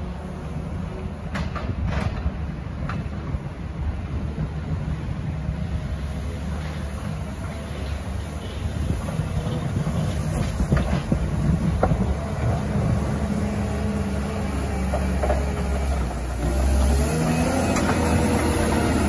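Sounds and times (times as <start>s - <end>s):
diesel engine running: 4.6s - 19.0s.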